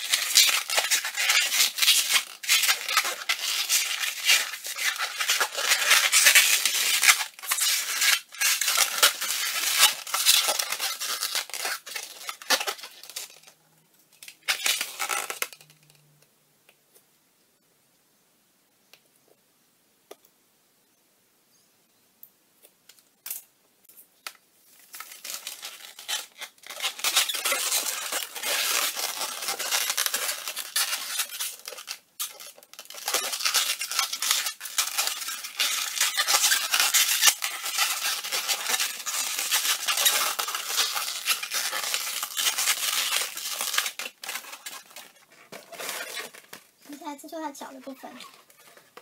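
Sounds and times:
balloon squeaking: 0.0 - 13.5, 14.3 - 15.8, 25.0 - 46.9, 47.7 - 49.0.

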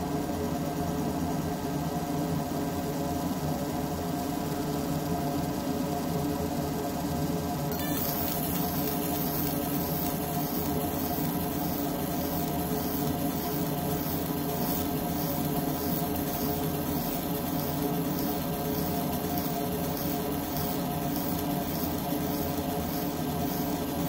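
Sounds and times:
laser engraver pulsing hiss: 7.7 - 24.0
steady machine hum: 7.7 - 24.0.

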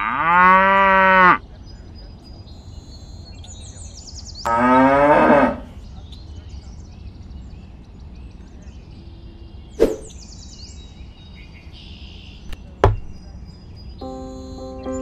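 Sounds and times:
birds chirping: 5.8 - 15.0
sharp wooden knocks: 12.8 - 13.2.

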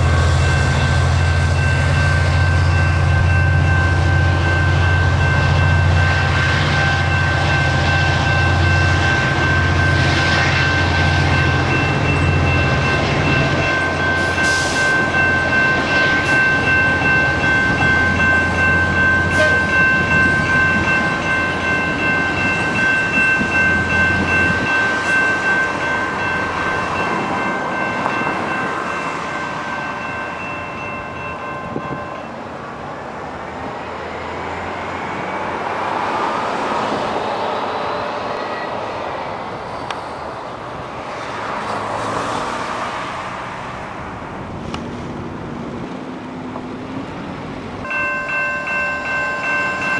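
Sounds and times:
level-crossing bell ringing: 0.0 - 32.4, 47.8 - 49.9.

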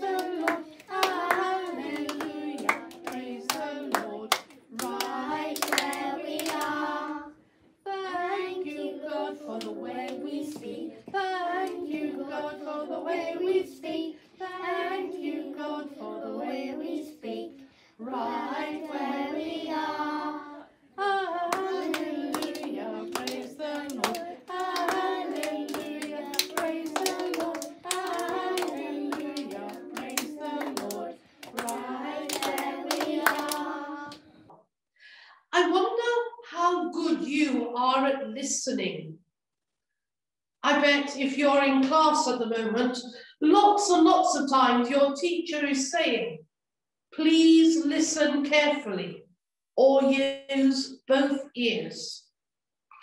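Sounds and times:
hand clapping: 0.0 - 6.8, 21.5 - 34.2
children singing: 0.0 - 34.5.

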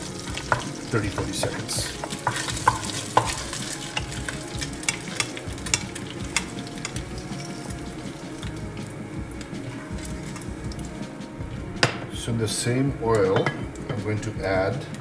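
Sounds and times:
wooden spoon scraping a pot: 0.0 - 11.0
oil sizzling and crackling: 0.0 - 15.0.

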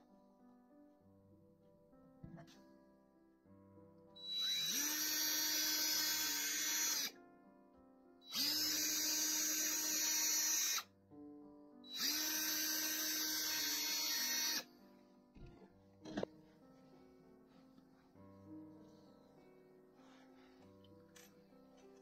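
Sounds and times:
drill drilling into metal: 4.2 - 7.1, 8.3 - 10.8, 11.9 - 14.6.

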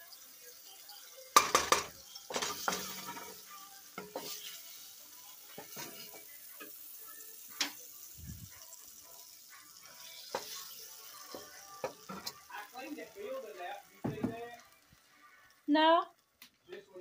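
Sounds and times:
butter sizzling in a pot: 0.0 - 17.0.

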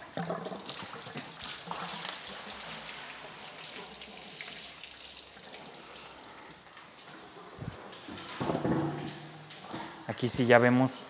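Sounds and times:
water pouring and splashing on floor: 0.0 - 11.0
knock: 8.4 - 9.1.

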